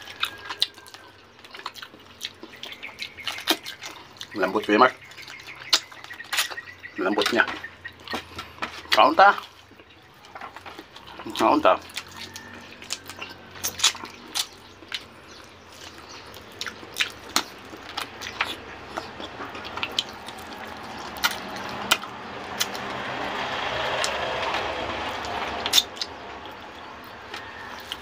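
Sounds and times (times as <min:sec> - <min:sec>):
lip smacks and chewing: 0:00.0 - 0:28.0
rushing background noise: 0:11.7 - 0:28.0.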